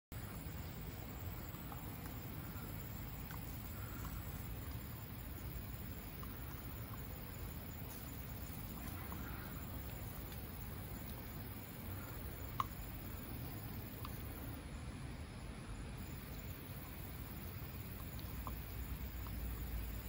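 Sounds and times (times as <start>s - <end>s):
outdoor background hiss: 0.1s - 20.0s.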